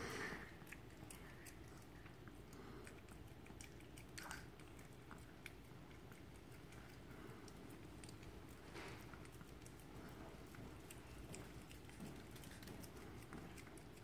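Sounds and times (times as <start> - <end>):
dog tongue licking wet clicks: 0.5 - 14.0.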